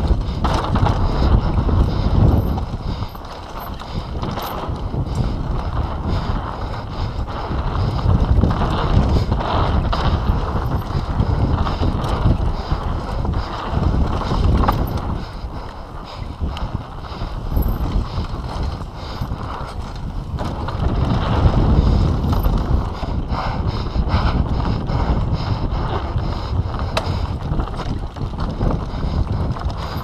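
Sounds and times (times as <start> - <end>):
tyre noise on dirt: 0.0 - 23.2
bike clattering over bumps: 0.0 - 30.0
wind buffeting microphone: 0.0 - 30.0.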